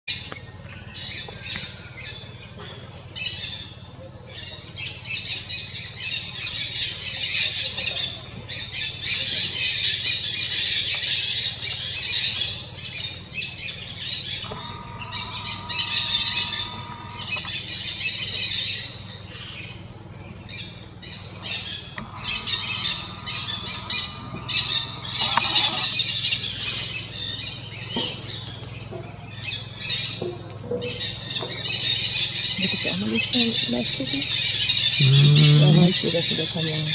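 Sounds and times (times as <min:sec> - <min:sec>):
parakeet flock squawking: 0:14.0 - 0:18.8, 0:21.0 - 0:27.8, 0:30.9 - 0:36.9.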